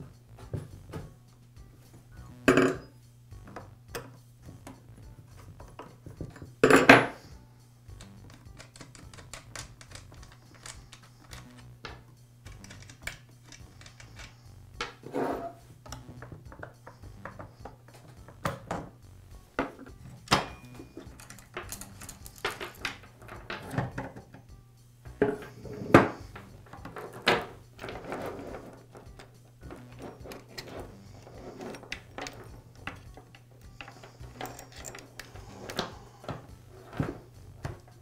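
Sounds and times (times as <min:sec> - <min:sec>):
metal clinks and knocks: 0:07.9 - 0:19.0, 0:19.6 - 0:24.5, 0:25.1 - 0:38.0
chain rattling: 0:08.1 - 0:11.7, 0:12.5 - 0:14.4, 0:20.0 - 0:24.2, 0:25.4 - 0:38.0.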